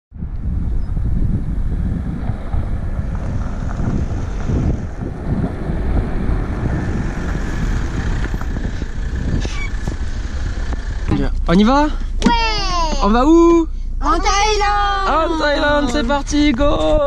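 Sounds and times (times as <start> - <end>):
wind buffeting microphone: 0.1 - 11.4, 14.5 - 17.0
car pulling out on gravel: 0.6 - 12.8.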